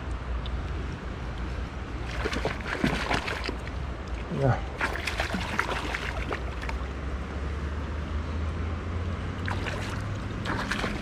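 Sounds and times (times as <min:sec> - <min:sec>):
creek water rushing: 0:01.8 - 0:07.1, 0:09.3 - 0:11.0
fish splashing at surface: 0:02.1 - 0:03.7, 0:04.8 - 0:06.8, 0:09.4 - 0:11.0.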